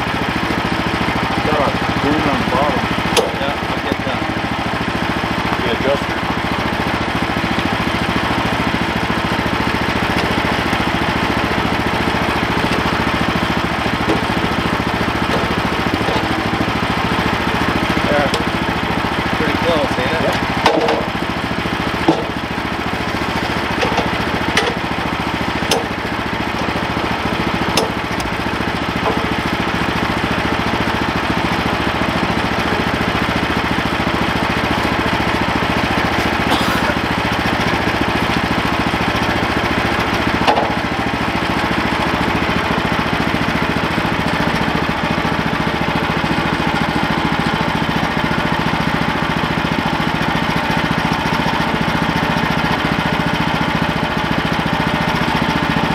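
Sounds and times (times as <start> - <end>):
sawmill engine idling: 0.0 - 55.9
sharp knocks of log shifting: 3.0 - 3.9, 9.4 - 18.9, 19.9 - 31.6, 35.8 - 42.1.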